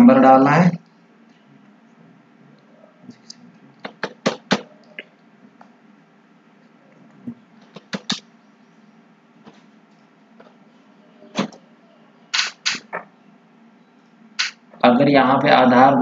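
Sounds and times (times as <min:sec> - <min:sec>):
faint steady hum: 0:00.0 - 0:16.0
computer mouse clicking: 0:07.6 - 0:08.2, 0:12.4 - 0:13.0, 0:14.4 - 0:14.6.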